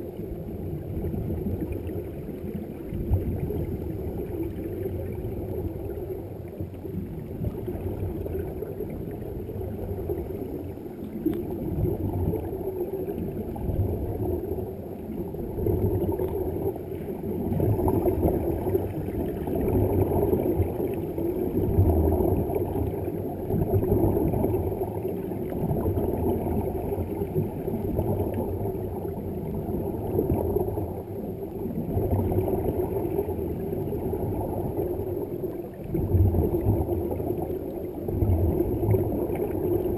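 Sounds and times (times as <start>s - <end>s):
underwater air bubbles gurgling: 0.0s - 39.9s.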